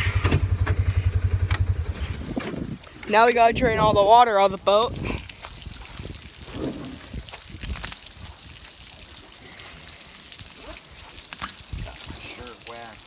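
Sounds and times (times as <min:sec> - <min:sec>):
water trickling onto gravel: 0:04.2 - 0:13.0.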